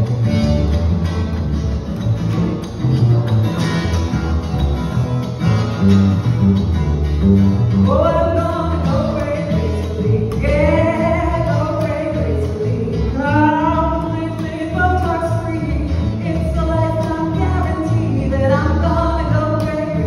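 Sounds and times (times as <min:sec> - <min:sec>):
acoustic guitar: 0:00.0 - 0:20.0
double bass walking line: 0:00.0 - 0:20.0
person singing: 0:07.9 - 0:20.0.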